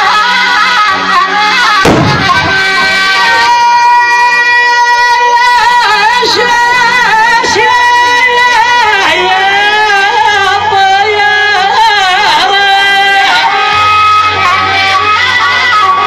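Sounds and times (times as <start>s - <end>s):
man singing melismatically: 1.3s - 13.6s.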